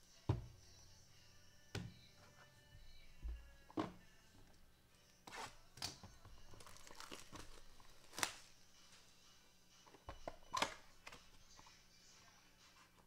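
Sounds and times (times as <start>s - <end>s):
plastic wrap tearing and crinkling: 6.5s - 8.5s.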